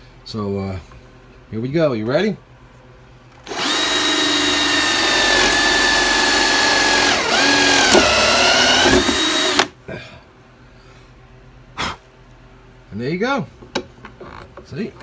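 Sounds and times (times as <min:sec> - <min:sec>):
drill boring into wood: 0:03.4 - 0:09.7.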